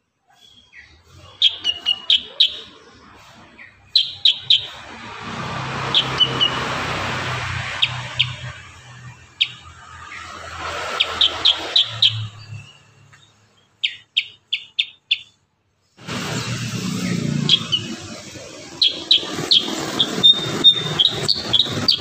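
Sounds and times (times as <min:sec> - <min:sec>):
bird calling in sharp notes: 0:00.6 - 0:02.9, 0:03.8 - 0:04.8, 0:11.0 - 0:15.4, 0:16.8 - 0:22.0
rushing background noise: 0:01.2 - 0:15.3, 0:16.0 - 0:22.0.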